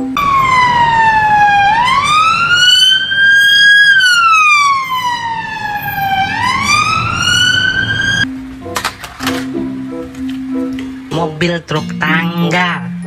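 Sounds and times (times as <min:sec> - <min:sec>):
police siren wailing: 0:00.0 - 0:08.3.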